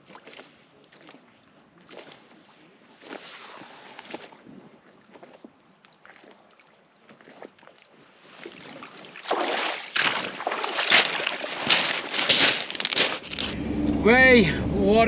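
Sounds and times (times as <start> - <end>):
pebbles crunching and rattling: 10.8 - 13.6.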